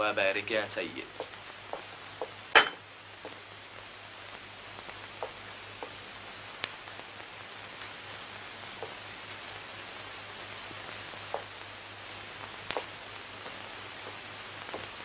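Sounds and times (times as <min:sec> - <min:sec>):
film soundtrack hiss and hum: 0:00.0 - 0:15.0
plates and cutlery clinking: 0:02.6 - 0:02.8.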